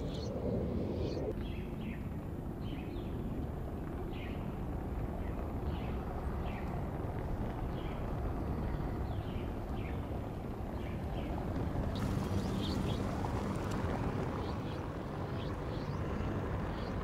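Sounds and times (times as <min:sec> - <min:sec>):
low outdoor rumble: 0:00.0 - 0:17.0
small bird chirping: 0:12.0 - 0:17.0.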